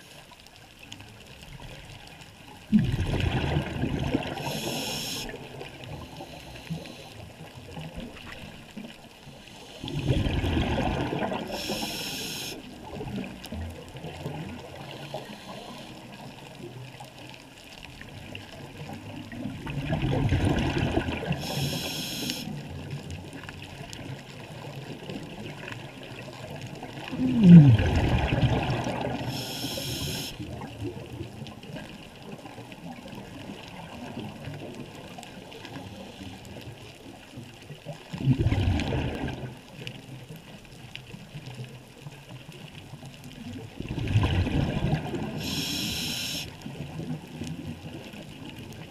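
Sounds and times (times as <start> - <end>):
bubbles burbling underwater: 2.6 - 6.1, 9.8 - 14.9, 17.9 - 22.0, 22.6 - 35.6, 37.1 - 39.8, 42.4 - 48.9
air hissing through regulator: 4.4 - 5.3, 11.5 - 12.6, 21.4 - 22.5, 29.3 - 30.4, 45.4 - 46.5.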